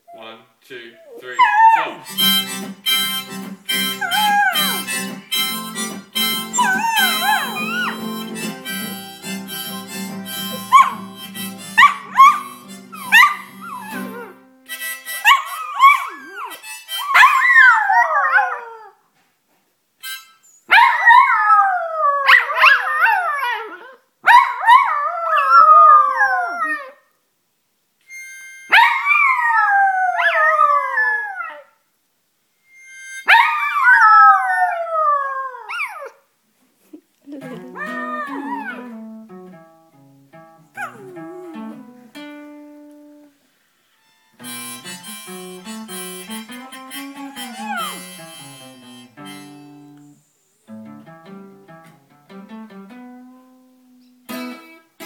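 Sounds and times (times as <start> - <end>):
instrument playing steady chords: 2.0 - 15.3, 44.0 - 50.0
dogs howling: 6.5 - 8.1, 37.4 - 39.0.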